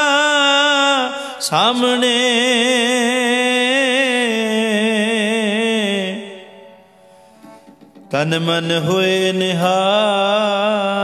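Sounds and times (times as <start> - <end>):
man singing with vibrato: 0.0 - 7.2, 8.0 - 11.0
tabla: 6.1 - 9.9.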